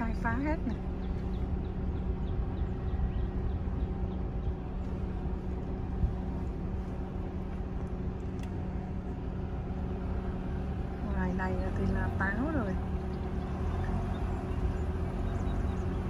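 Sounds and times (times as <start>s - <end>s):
car engine and road rumble: 0.0s - 16.0s
faint hum: 0.0s - 16.0s.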